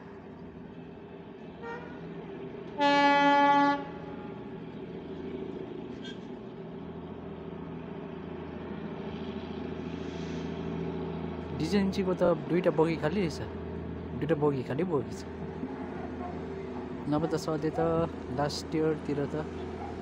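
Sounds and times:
locomotive engine hum: 0.0 - 20.0
train horn blast: 1.6 - 2.0, 2.8 - 4.4.

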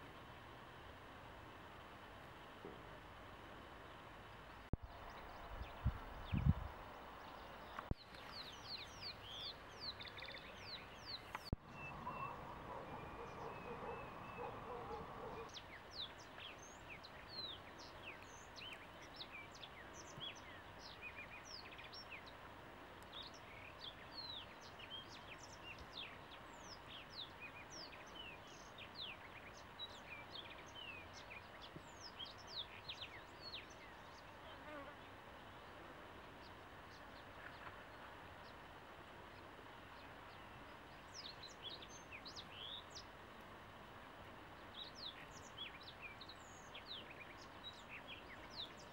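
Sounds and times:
birds chirping: 3.8 - 43.1, 44.5 - 48.9
low warbling bird call: 11.6 - 15.6.

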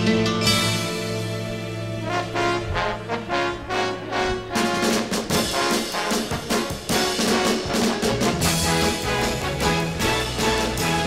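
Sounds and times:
pitched melody: 0.0 - 11.0
steady drum beat: 4.3 - 11.0.

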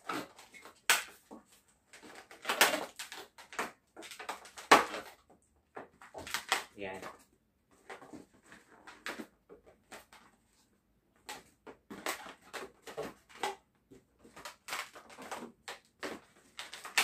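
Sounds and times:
balloons squeaking and rustling: 0.0 - 5.2, 11.9 - 17.0.

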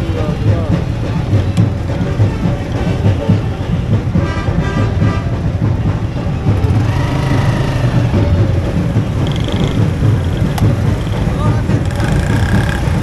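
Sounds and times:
music: 0.0 - 13.0
street traffic noise: 0.0 - 13.0
small motorcycle engine: 9.2 - 13.0.

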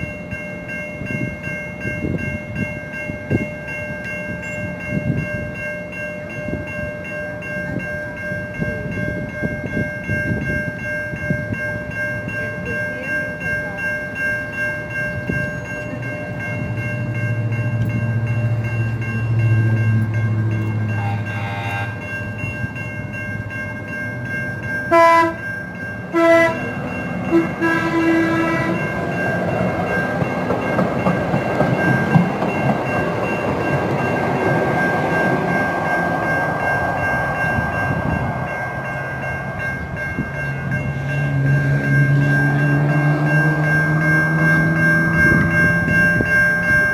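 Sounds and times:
train wheels rumbling on rail: 0.0 - 46.9
train horn blasts: 20.8 - 22.2, 24.9 - 25.5, 26.1 - 29.0.

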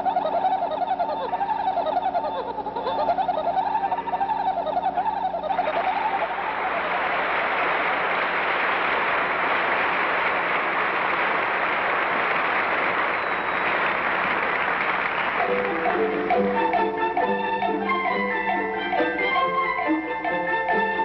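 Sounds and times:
audience applauding: 3.6 - 20.9
music: 15.3 - 21.0.

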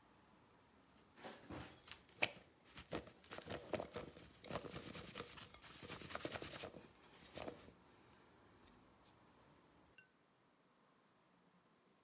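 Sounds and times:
potato strips tumbling in glass bowl: 2.2 - 7.7.

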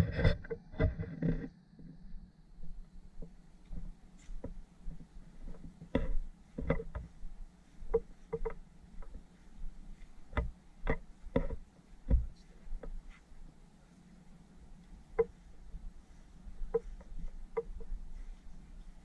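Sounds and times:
soft knocks and thumps: 0.0 - 2.0, 3.2 - 13.5
low steady hum: 0.0 - 19.0.

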